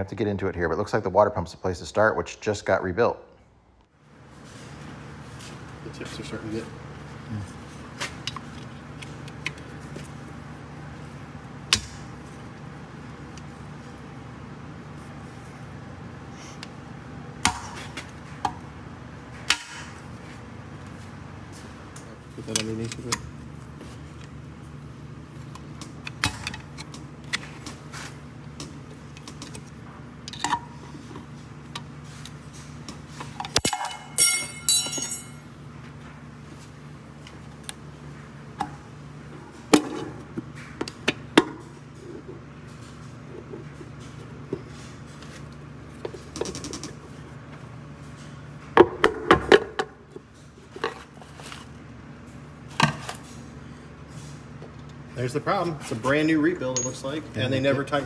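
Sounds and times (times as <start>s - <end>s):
steady low hum: 0.0s - 58.0s
metallic ringing clatter: 33.6s - 35.4s
tools prying at metal housing: 33.6s - 35.4s.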